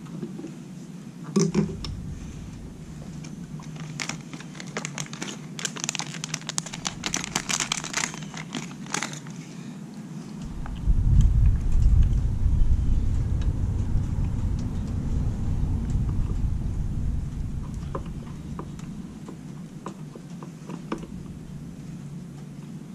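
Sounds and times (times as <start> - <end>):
loud low rumble: 1.6 - 5.1, 6.5 - 8.2, 10.4 - 20.2, 20.8 - 22.4
plastic packet crinkling: 3.6 - 9.5.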